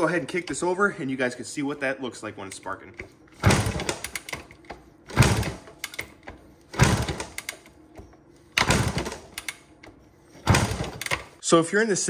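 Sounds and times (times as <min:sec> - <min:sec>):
motorcycle kick-start cranking: 0:03.4 - 0:07.7.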